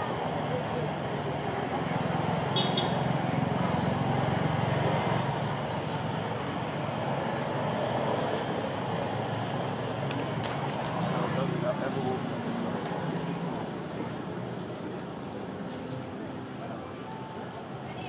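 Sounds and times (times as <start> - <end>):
cricket chirping: 0.0 - 11.5
low traffic rumble: 0.0 - 18.0.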